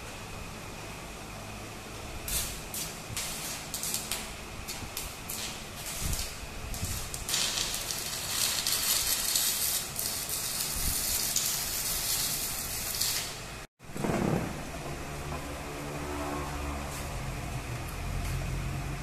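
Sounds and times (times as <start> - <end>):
welding arc crackling: 2.2 - 15.8.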